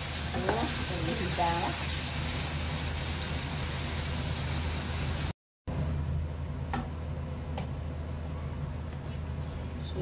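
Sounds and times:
liver and onions sizzling in a wok: 0:00.0 - 0:05.3.

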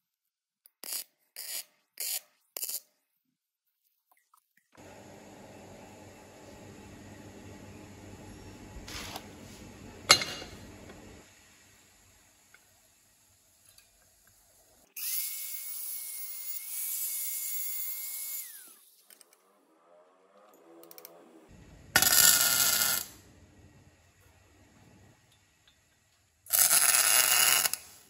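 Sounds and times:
welder crackling: 0:21.6 - 0:23.9, 0:26.5 - 0:28.0
angle grinder grinding steel: 0:22.0 - 0:23.2.

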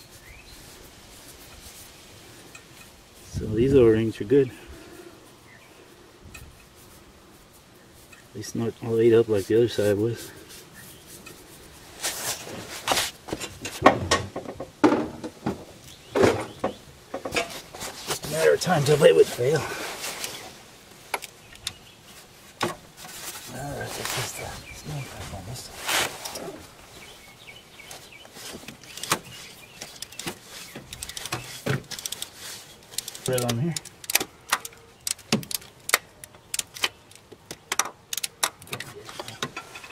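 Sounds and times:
cloth rubbing on metal part: 0:00.0 - 0:02.0, 0:06.4 - 0:13.2, 0:22.1 - 0:27.2, 0:27.8 - 0:33.6.

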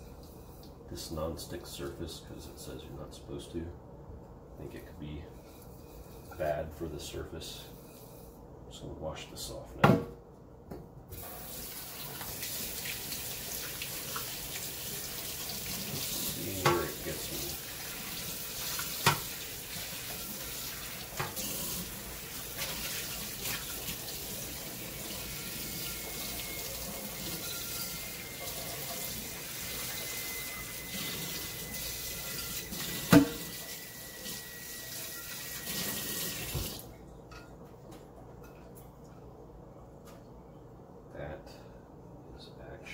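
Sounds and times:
tap running into metal sink: 0:18.8 - 0:19.3, 0:32.9 - 0:33.6, 0:35.7 - 0:36.8.

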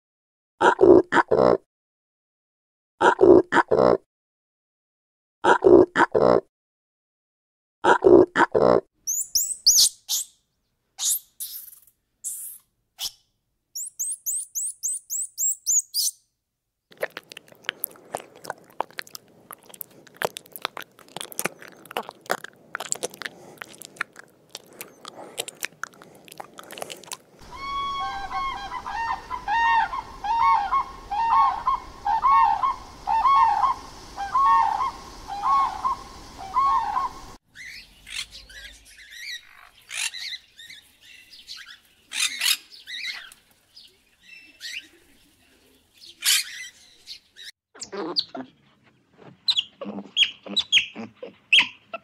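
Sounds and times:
quick animal clicks and chirps: 0:09.1 - 0:10.3, 0:11.0 - 0:13.2, 0:13.8 - 0:16.1
higher animal chirps: 0:09.1 - 0:10.4, 0:13.8 - 0:16.2, 0:17.0 - 0:40.3, 0:49.5 - 0:51.8
arching pitched animal calls: 0:24.6 - 0:37.2.

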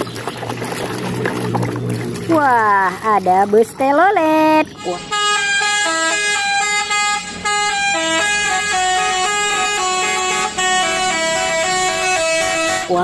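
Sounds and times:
musical air horn tune: 0:04.8 - 0:13.0.

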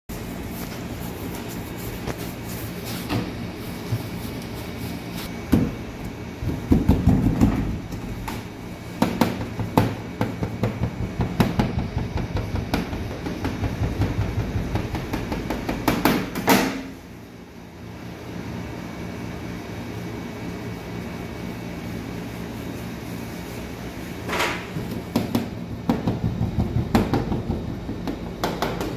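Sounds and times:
steady background hum: 0:00.1 - 0:28.9.

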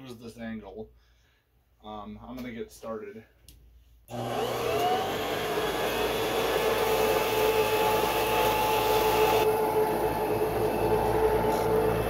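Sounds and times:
vacuum cleaner motor whine: 0:04.1 - 0:12.0.

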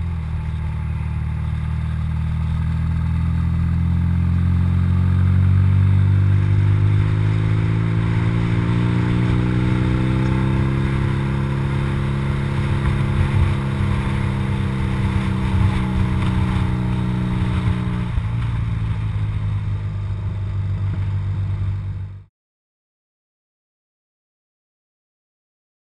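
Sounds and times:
motorcycle engine running: 0:00.0 - 0:22.3
wind rushing over microphone: 0:06.2 - 0:19.2.

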